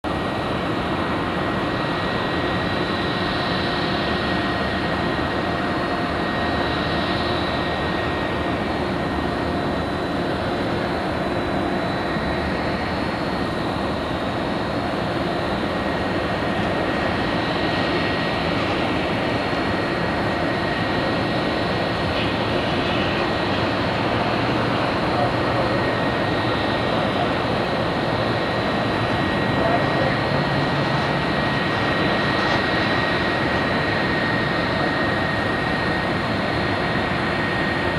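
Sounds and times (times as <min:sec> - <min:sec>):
high engine whine: 0:00.0 - 0:37.9
jet engine rush: 0:00.0 - 0:37.9.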